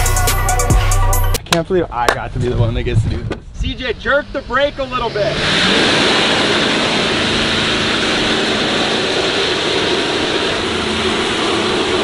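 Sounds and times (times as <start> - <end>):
truck engine at high revs: 4.2 - 12.0.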